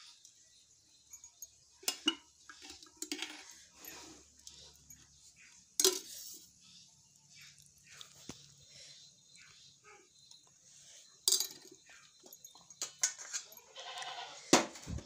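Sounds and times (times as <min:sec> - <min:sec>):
metal cookware clinking: 0:01.4 - 0:04.0, 0:05.8 - 0:06.4, 0:11.2 - 0:13.7.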